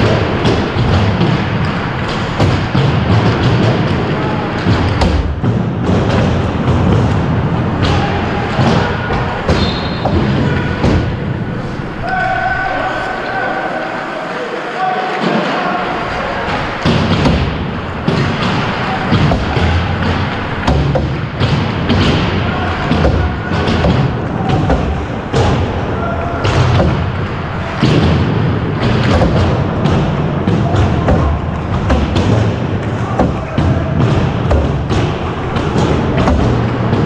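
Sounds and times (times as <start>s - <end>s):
hockey sticks and pucks knocking: 0.0s - 12.4s, 15.1s - 37.0s
thumps close to microphone: 16.8s - 25.8s, 26.4s - 37.0s.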